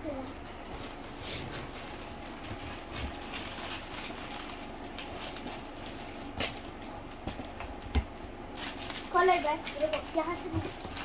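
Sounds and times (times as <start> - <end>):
cardboard and plastic rustling: 0.0 - 11.0.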